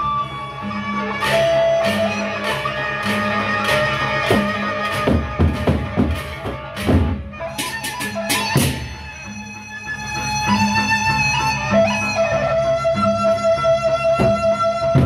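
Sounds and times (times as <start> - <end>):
large drums beaten in runs: 4.2 - 9.0.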